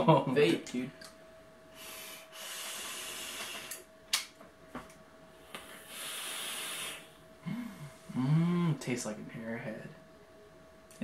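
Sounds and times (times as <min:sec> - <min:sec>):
breathy exhale: 0:01.7 - 0:03.8, 0:05.7 - 0:08.6
vape drag hiss: 0:01.8 - 0:03.9, 0:05.6 - 0:07.2.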